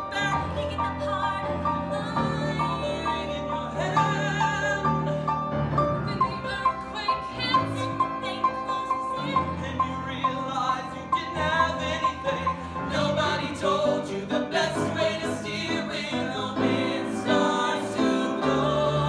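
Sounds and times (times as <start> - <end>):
voices singing show tune: 6.4 - 19.0.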